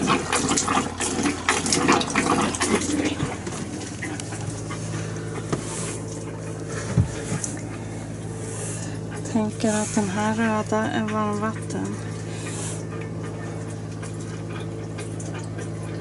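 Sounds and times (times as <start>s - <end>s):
tap spitting and sputtering: 0.0s - 7.8s
steady quiet hum: 0.0s - 16.0s.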